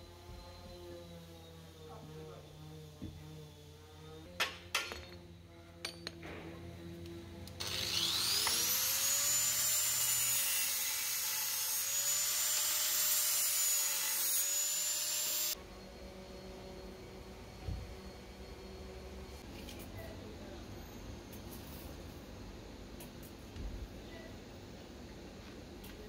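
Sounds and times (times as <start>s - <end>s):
angle grinder whining: 0.0s - 19.5s.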